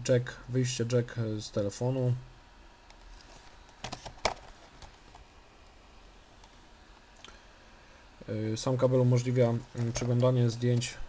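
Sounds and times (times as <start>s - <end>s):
packaging rustle: 3.0s - 5.3s
packaging clicks: 3.7s - 5.2s.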